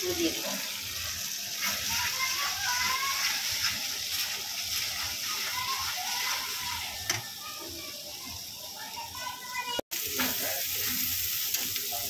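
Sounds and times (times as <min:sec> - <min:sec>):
spices sizzling in hot oil: 0:00.0 - 0:12.0
spatula stirring: 0:00.2 - 0:07.3.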